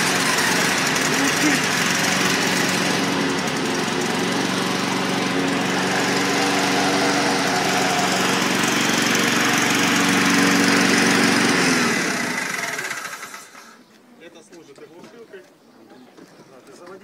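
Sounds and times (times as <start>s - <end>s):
brush cutter engine running: 0.0s - 13.8s.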